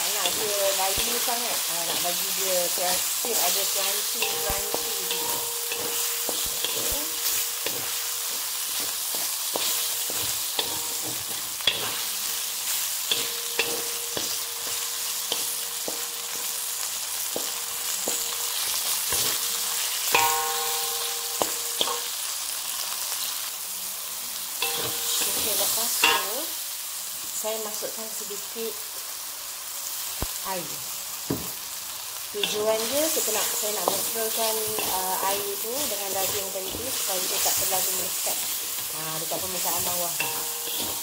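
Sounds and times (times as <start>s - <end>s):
food sizzling in a wok: 0.0s - 41.0s
spatula scraping a pan: 3.3s - 16.5s, 32.4s - 41.0s.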